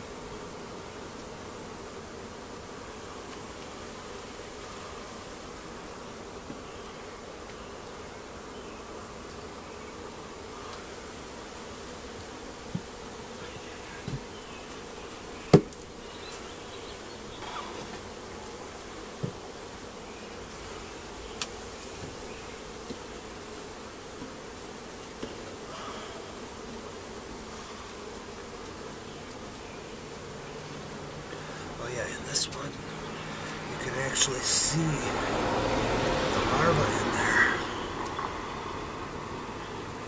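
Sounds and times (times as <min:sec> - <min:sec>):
bees humming: 0:00.0 - 0:40.0
wooden knocks of hive frames: 0:12.2 - 0:16.0, 0:17.3 - 0:19.6, 0:21.4 - 0:23.1, 0:24.1 - 0:24.4, 0:25.1 - 0:25.8.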